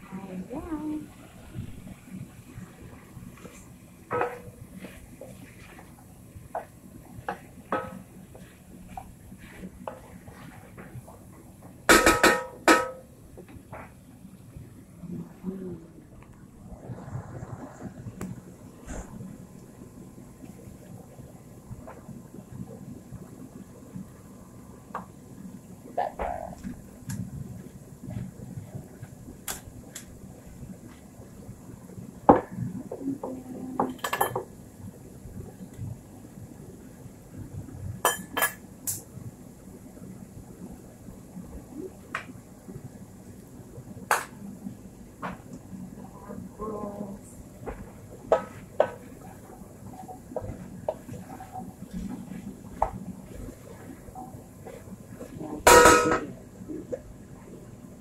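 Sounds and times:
wooden spoon stirring in pot: 0:02.9 - 0:11.7, 0:47.4 - 0:55.6
spoon knocking on pot: 0:11.9 - 0:13.0.

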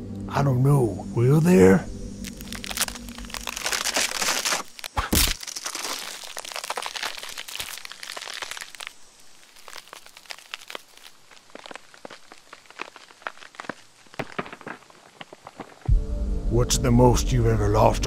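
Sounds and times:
sharp crack: 0:02.2 - 0:14.9
plastic wrapper crinkling: 0:02.2 - 0:15.8.

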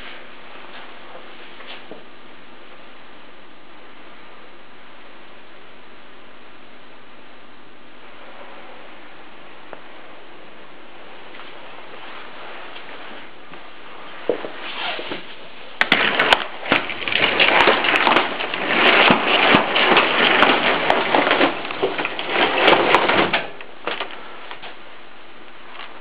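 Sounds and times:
microphone rubbing and crackling: 0:07.9 - 0:24.9.

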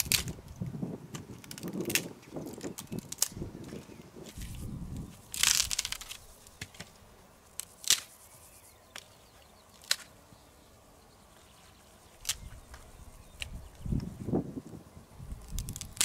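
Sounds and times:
wood snapping: 0:00.0 - 0:00.4, 0:01.1 - 0:04.4, 0:05.3 - 0:06.9, 0:07.6 - 0:08.1, 0:09.8 - 0:10.1, 0:12.2 - 0:12.5, 0:15.5 - 0:16.0.

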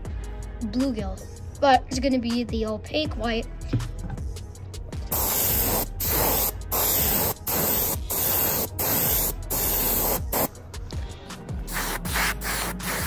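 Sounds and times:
airbrush spraying hiss: 0:05.1 - 0:10.5, 0:11.6 - 0:13.0.

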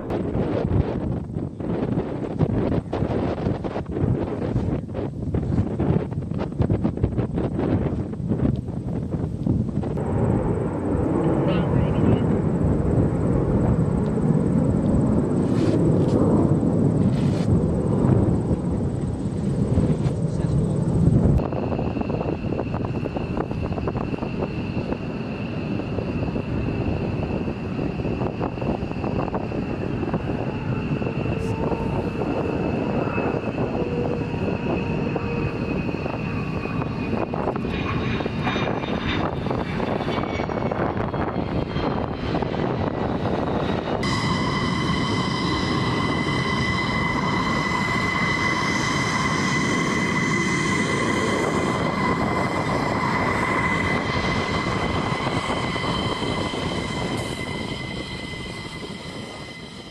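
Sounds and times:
jet engine rumble with whine: 0:00.0 - 0:59.9.

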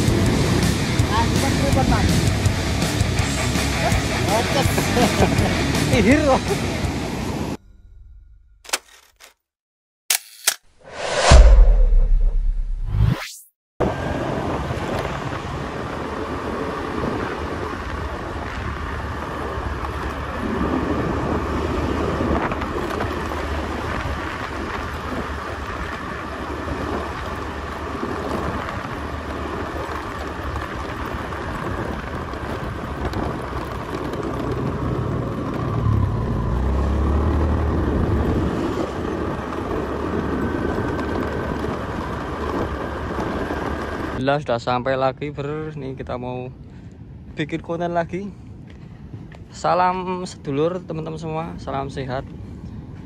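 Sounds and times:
wind buffeting microphone: 0:00.0 - 0:05.3, 0:13.8 - 0:44.2, 0:46.5 - 0:53.0
motorcycle engine rumble: 0:14.0 - 0:44.2.

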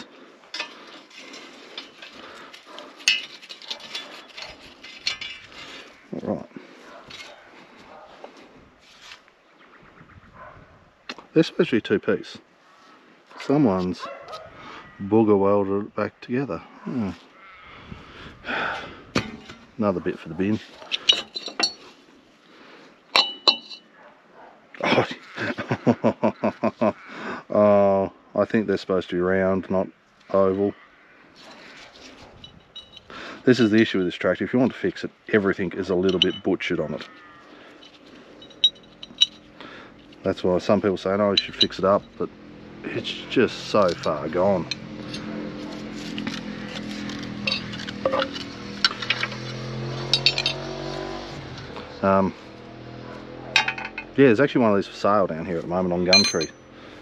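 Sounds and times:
metal parts clinking together: 0:00.0 - 0:05.8, 0:20.8 - 0:21.9, 0:23.1 - 0:23.9, 0:32.3 - 0:34.0, 0:35.9 - 0:42.2, 0:43.4 - 0:51.0, 0:53.6 - 0:54.2, 0:56.1 - 0:56.6
sharp metal taps: 0:53.6 - 0:54.1.

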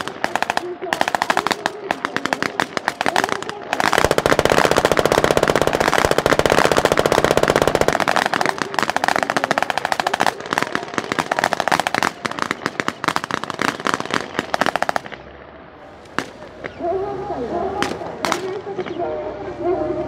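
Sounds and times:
machine gun firing bursts: 0:00.0 - 0:15.2
single gunshots: 0:00.0 - 0:15.2.

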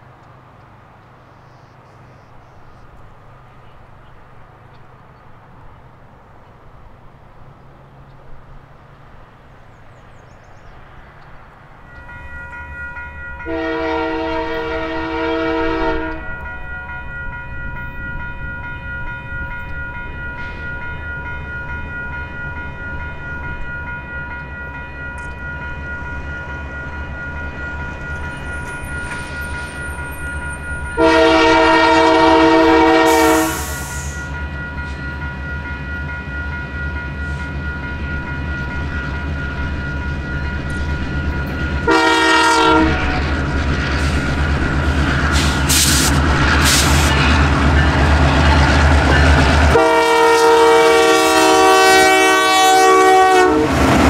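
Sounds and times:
train rumbling: 0:00.0 - 0:54.0
locomotive air horn blasts: 0:13.4 - 0:16.4, 0:31.0 - 0:34.4, 0:41.8 - 0:43.3, 0:49.7 - 0:54.0.

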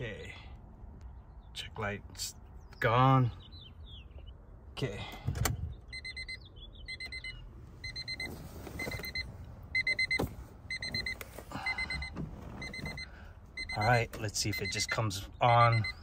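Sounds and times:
car warning chime beeping: 0:05.8 - 0:16.0.

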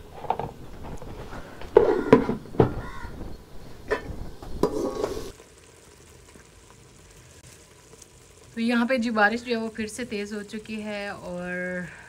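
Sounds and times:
metal ladle scraping a pot: 0:00.0 - 0:02.4, 0:03.9 - 0:05.4
faint hiss: 0:03.5 - 0:12.0.

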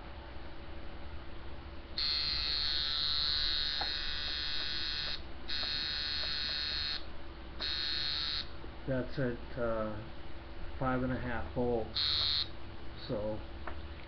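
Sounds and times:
tattoo machine buzzing: 0:02.0 - 0:08.5, 0:11.9 - 0:12.5.

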